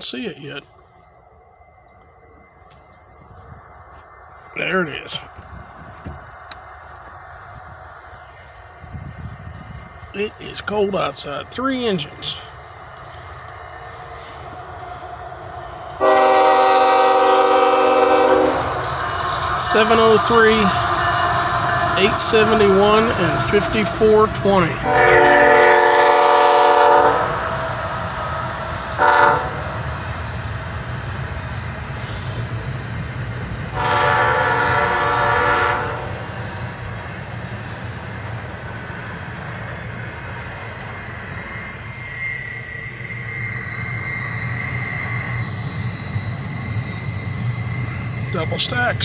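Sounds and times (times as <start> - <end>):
faint high whine: 0.0 - 15.1, 40.1 - 49.0
freight train rumbling: 0.0 - 49.0
train horn blasts: 16.0 - 18.8, 22.0 - 27.4, 28.9 - 29.8, 33.7 - 36.3.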